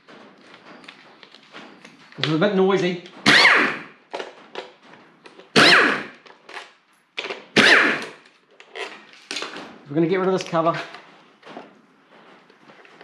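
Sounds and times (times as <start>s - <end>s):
impact driver bursts: 3.2s - 4.0s, 5.5s - 6.2s, 7.6s - 8.2s.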